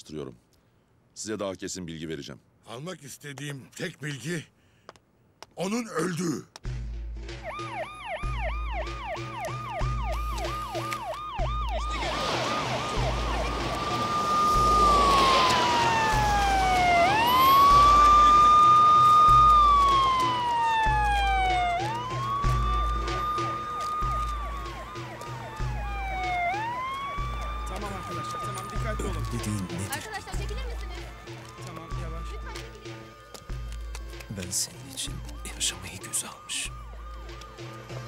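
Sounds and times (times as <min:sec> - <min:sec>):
street noise: 0:00.0 - 0:38.0
emergency siren yelp and wail: 0:07.4 - 0:38.0.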